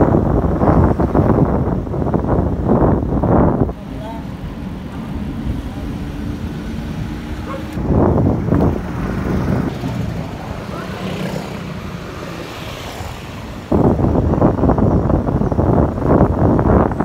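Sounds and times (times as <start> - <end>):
passing car: 0.0 - 17.0
wind buffeting microphone: 0.0 - 17.0
passing motorbike: 4.8 - 17.0.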